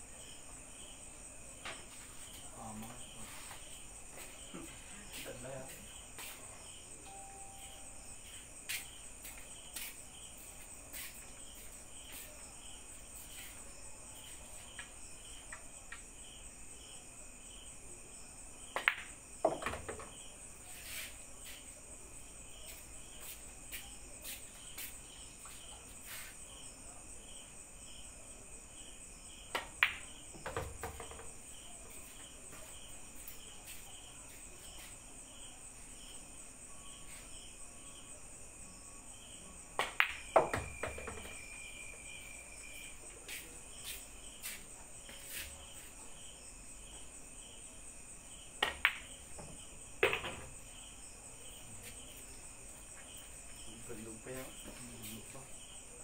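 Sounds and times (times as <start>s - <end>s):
crickets chirping: 0.0s - 56.0s
ball dropping into pocket: 39.8s - 41.4s, 48.6s - 49.1s.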